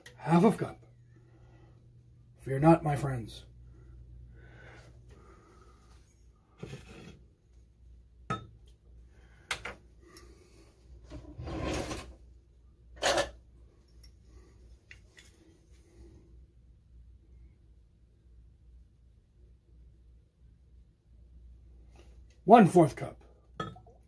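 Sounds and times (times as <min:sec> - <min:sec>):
glass bottle clicks and knocks: 0:08.3 - 0:08.6, 0:23.6 - 0:24.0.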